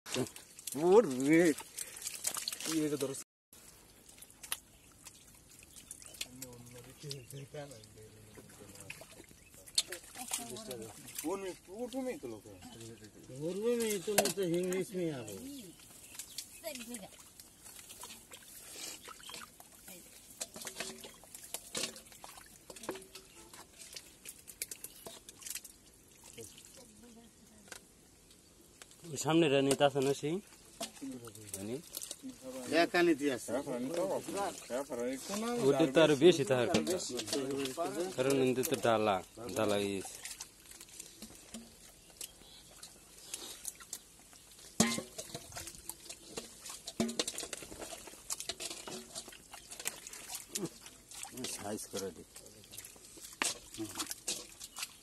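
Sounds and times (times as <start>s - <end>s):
hands splashing in muddy water: 0.1s - 12.0s, 33.8s - 55.0s.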